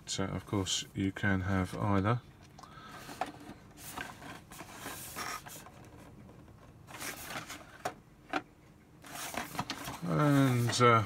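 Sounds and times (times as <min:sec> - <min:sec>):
cardboard box rustling: 0:03.0 - 0:08.0, 0:09.0 - 0:11.0.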